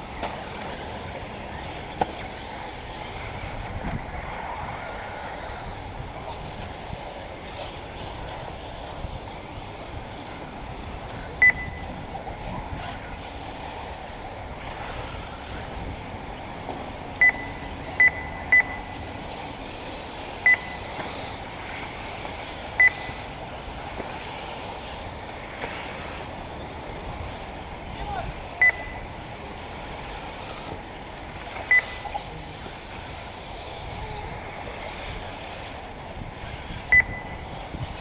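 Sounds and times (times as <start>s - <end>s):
steady rushing background noise: 0.0s - 38.0s
loud electronic beeps: 11.4s - 11.9s, 17.2s - 19.0s.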